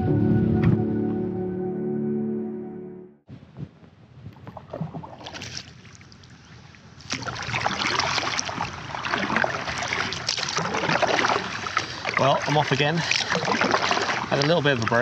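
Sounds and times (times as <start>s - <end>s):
kayak paddle strokes in water: 7.0s - 15.0s
water dripping off paddle: 7.0s - 15.0s.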